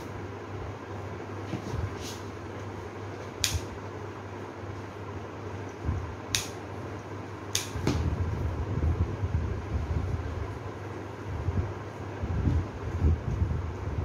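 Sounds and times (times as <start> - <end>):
steady low hum: 0.0 - 14.0
scissors snipping stems: 6.3 - 6.6, 7.5 - 7.8.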